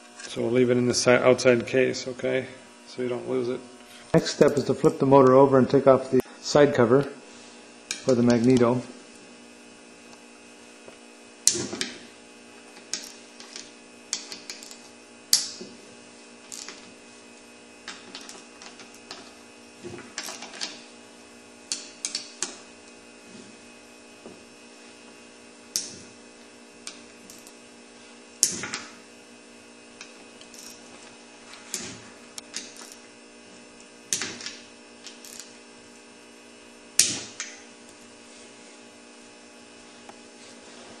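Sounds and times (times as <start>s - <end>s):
faint steady hum: 0.0s - 41.0s.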